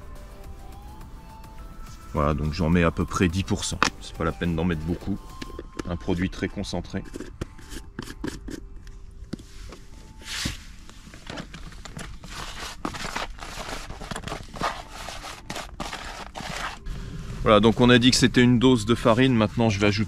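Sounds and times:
hands stirring dry paste: 0:03.2 - 0:16.9.

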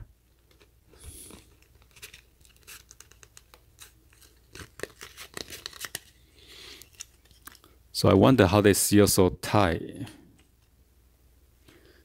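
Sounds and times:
plastic pouch rustling: 0:00.4 - 0:07.7.

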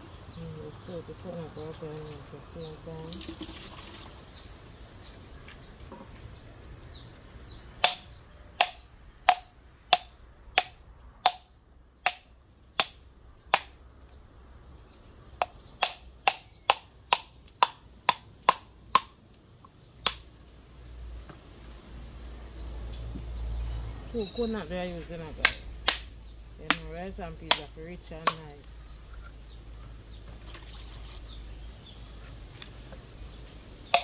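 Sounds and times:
sharp chopping blows: 0:07.8 - 0:13.8.

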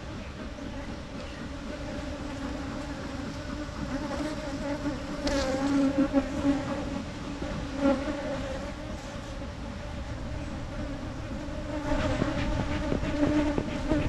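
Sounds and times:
bees buzzing: 0:00.0 - 0:14.0.

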